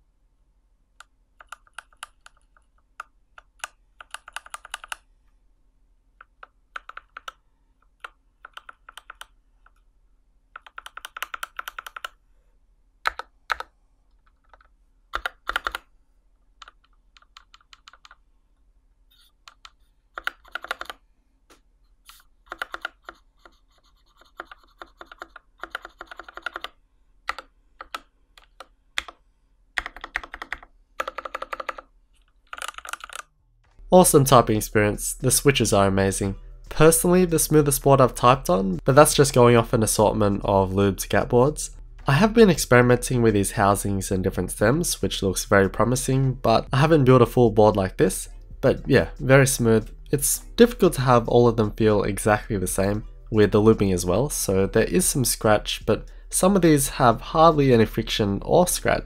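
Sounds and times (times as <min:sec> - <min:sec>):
mechanical keyboard typing: 0:01.4 - 0:05.0, 0:06.2 - 0:07.4, 0:08.0 - 0:09.3, 0:10.6 - 0:12.2, 0:13.1 - 0:13.7, 0:14.3 - 0:15.9, 0:16.6 - 0:18.2, 0:19.5 - 0:21.0, 0:22.5 - 0:29.2, 0:29.8 - 0:33.3.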